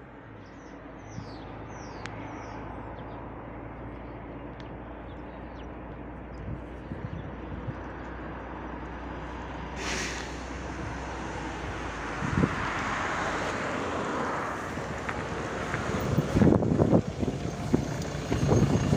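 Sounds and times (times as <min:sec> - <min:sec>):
distant traffic rumble: 0:00.0 - 0:18.9
birds chirping: 0:00.3 - 0:08.1.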